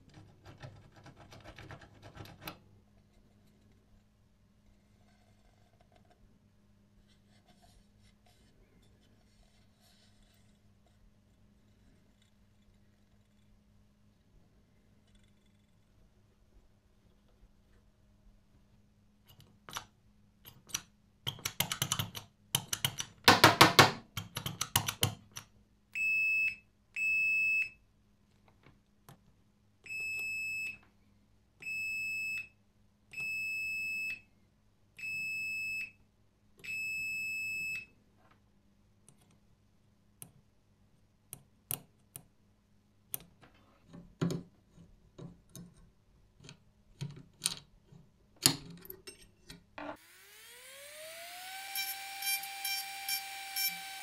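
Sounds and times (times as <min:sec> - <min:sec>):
door bell buzzing: 0:51.7 - 0:54.0.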